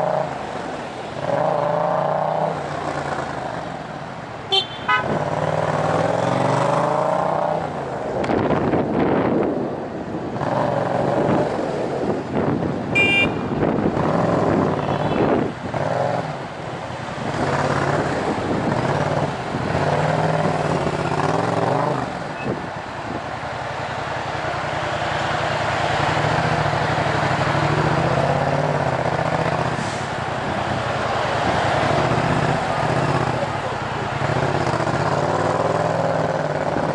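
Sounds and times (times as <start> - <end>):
surrounding traffic noise: 0.0 - 36.9.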